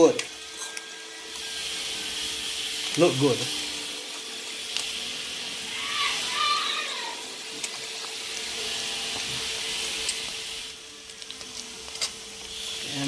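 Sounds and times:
fritters sizzling in hot oil: 0.0s - 13.0s.

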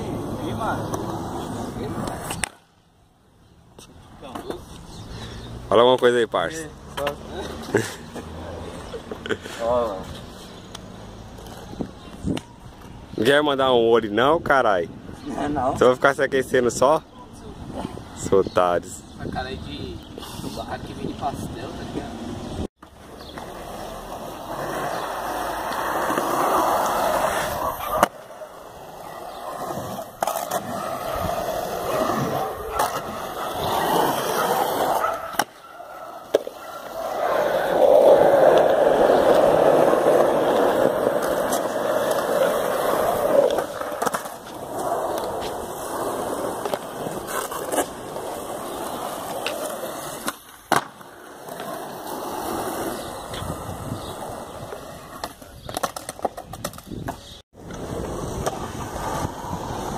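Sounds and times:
skateboard wheels rolling on concrete: 0.0s - 59.9s
skateboard clacking on ground: 24.2s - 35.6s, 36.2s - 52.1s, 54.6s - 59.4s.

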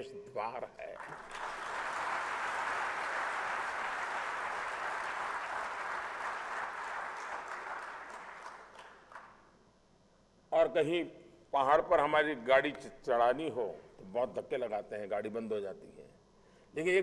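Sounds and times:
audience applauding: 1.0s - 9.4s.

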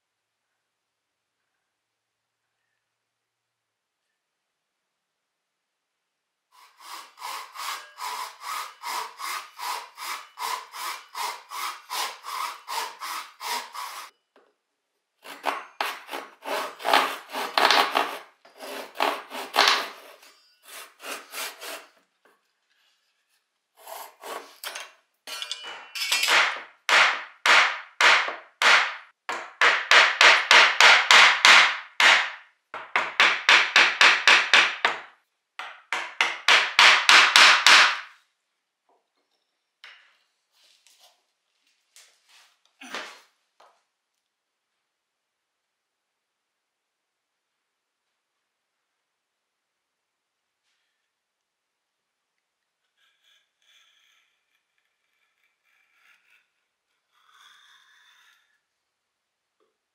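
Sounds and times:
hand saw cutting wood: 6.6s - 14.1s, 15.2s - 22.0s, 23.8s - 24.8s, 26.3s - 32.4s, 52.9s - 58.6s.

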